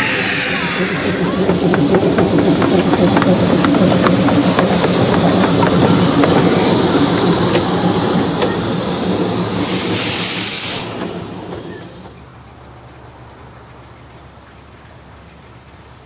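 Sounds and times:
steam locomotive hissing steam: 0.0s - 12.3s.

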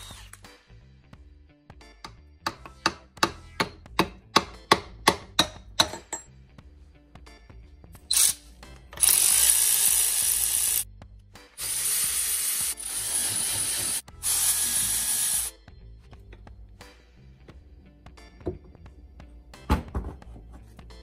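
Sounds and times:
electric ratchet motor running: 9.0s - 10.8s, 11.6s - 15.5s.

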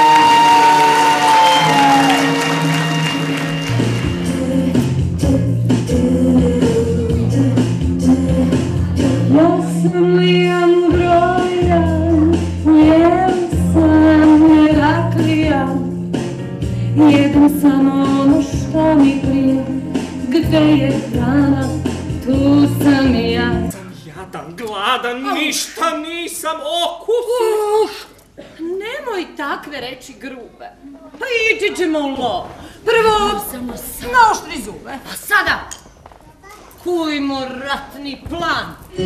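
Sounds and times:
instrumental accompaniment: 0.0s - 24.0s
woman singing: 4.1s - 16.0s, 16.9s - 23.8s.

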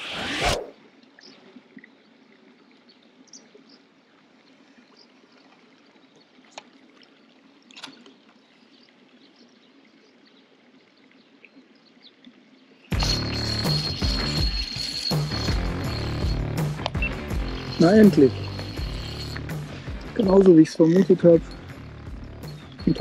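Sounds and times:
faint trickle of running water: 0.9s - 13.7s.

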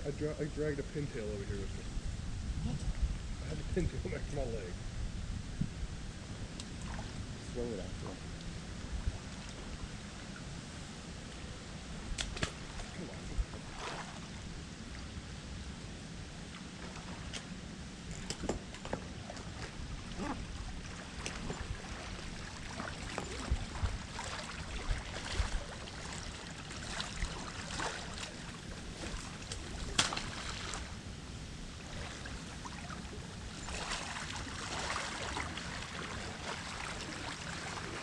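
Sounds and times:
water lapping and sloshing: 6.1s - 38.0s
small splashes: 12.1s - 14.4s, 18.1s - 31.0s, 31.8s - 38.0s.

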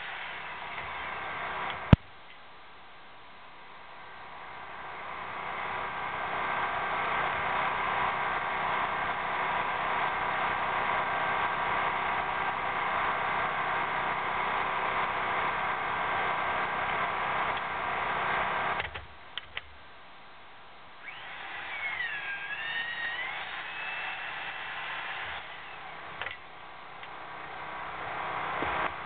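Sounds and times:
pipe facer whining: 20.3s - 29.0s.

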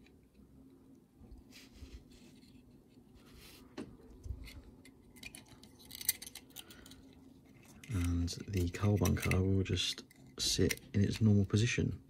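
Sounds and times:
low steady hum: 0.0s - 12.0s
plastic parts scraping and clicking: 4.2s - 11.5s.

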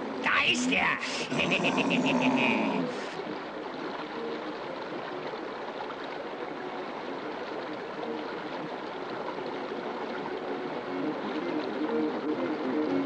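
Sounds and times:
running water rushing: 0.0s - 13.0s.

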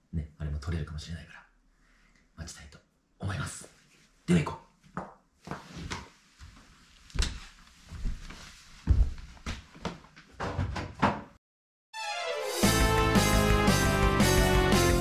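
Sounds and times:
background music: 12.0s - 15.0s.

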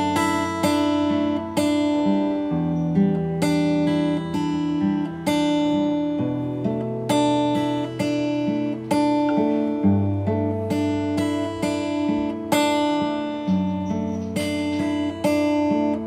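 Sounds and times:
acoustic guitar chords ringing: 0.0s - 16.0s.

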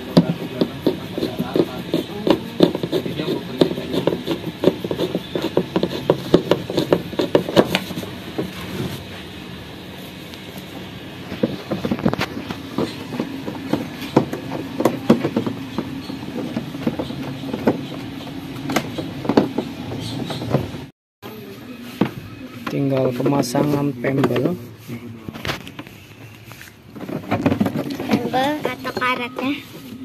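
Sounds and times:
plastic base knocking and rattling: 11.3s - 20.9s, 27.0s - 29.2s.

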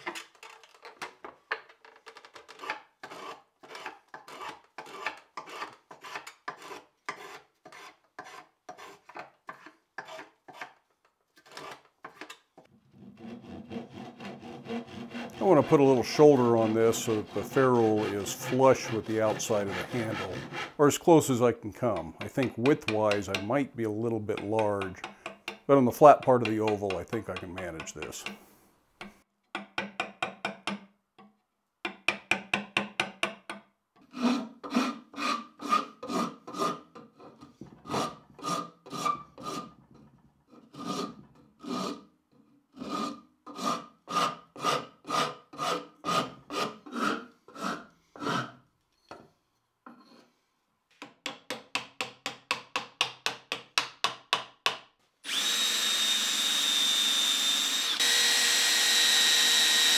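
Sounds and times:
rasp on wood: 2.4s - 10.8s, 11.4s - 12.3s, 12.9s - 20.9s, 21.9s - 23.5s, 34.1s - 39.8s, 40.6s - 42.1s, 42.8s - 48.6s, 55.3s - 59.9s
cordless drill boring into wood: 55.2s - 59.9s.

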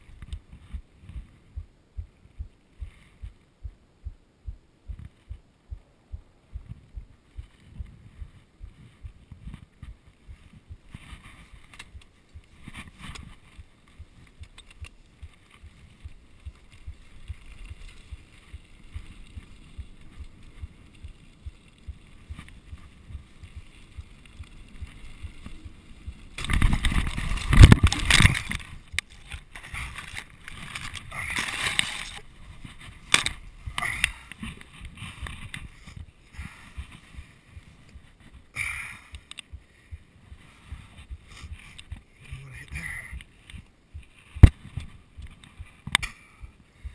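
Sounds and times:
mountain bike rattling over trail: 11.1s - 37.4s.

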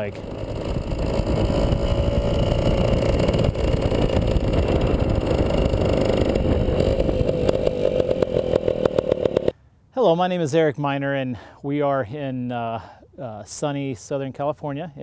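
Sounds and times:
two-stroke motorcycle engine: 0.0s - 9.5s.

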